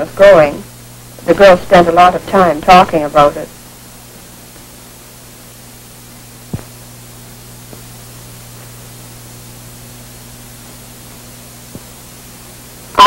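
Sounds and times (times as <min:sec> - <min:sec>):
film soundtrack hiss and hum: 0:00.0 - 0:13.0.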